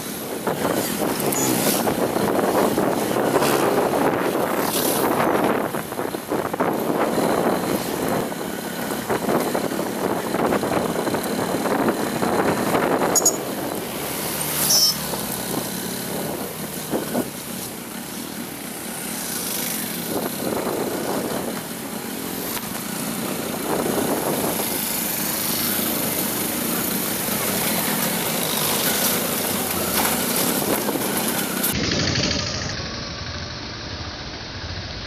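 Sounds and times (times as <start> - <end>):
traffic engines and road noise: 0.0 - 35.0
brief high squeak: 13.1 - 13.4, 14.5 - 15.2.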